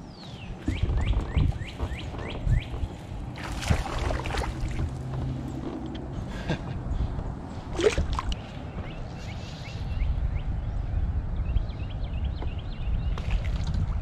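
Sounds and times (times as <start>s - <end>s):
steady low rumble: 0.0s - 14.0s
water sloshing against kayak: 0.7s - 6.2s, 7.6s - 8.9s.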